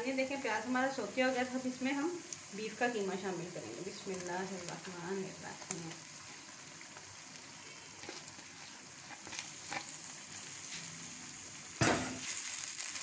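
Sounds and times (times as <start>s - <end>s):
meat sizzling in a frying pan: 0.0s - 13.0s.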